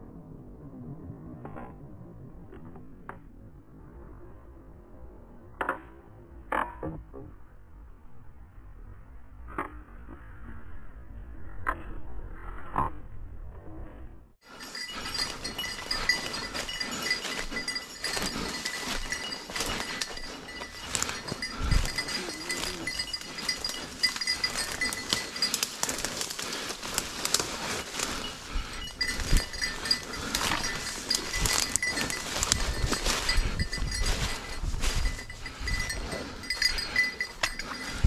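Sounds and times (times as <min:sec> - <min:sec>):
dog collar bell jingling: 0:14.5 - 0:38.0
brush and leaves crackling underfoot: 0:14.6 - 0:38.0.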